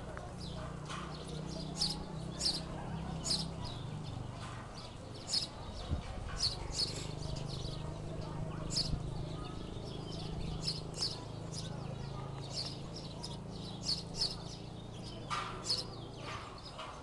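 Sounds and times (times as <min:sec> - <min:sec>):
bird chirping: 0:00.2 - 0:17.0.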